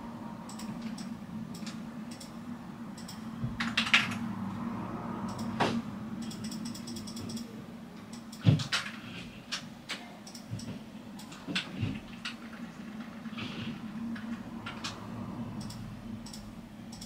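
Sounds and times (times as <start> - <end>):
steady low hum: 0.0 - 17.0
computer keyboard typing: 5.2 - 5.6, 6.2 - 9.6, 15.6 - 17.0.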